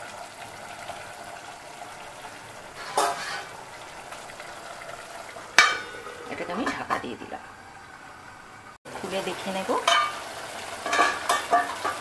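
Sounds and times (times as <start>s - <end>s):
gravy bubbling in a pot: 0.0s - 12.0s
metal lid clinking on pot: 2.8s - 3.5s, 5.6s - 7.1s, 9.8s - 10.2s, 10.8s - 12.0s.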